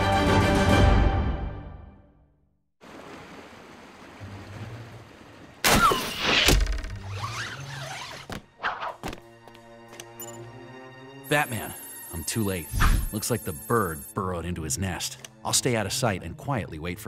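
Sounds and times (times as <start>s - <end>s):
cartoon theme music: 10.4s - 14.8s.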